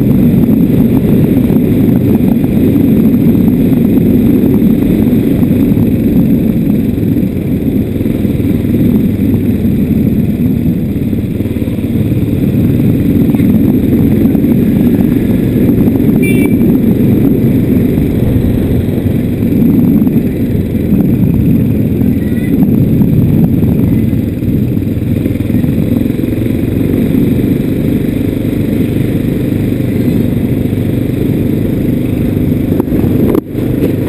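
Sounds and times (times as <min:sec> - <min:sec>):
motorbike engine rumble: 0:00.0 - 0:34.0
wind on microphone: 0:00.0 - 0:34.0.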